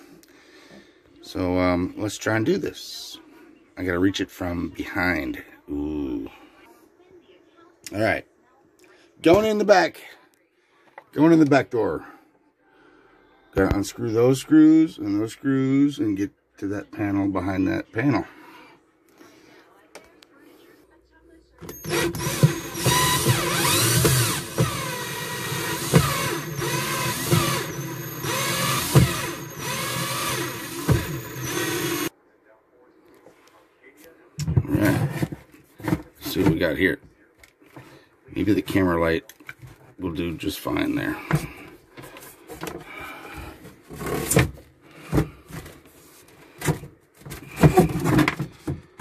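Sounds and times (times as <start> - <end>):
cordless drill motor whining: 21.6 - 32.1.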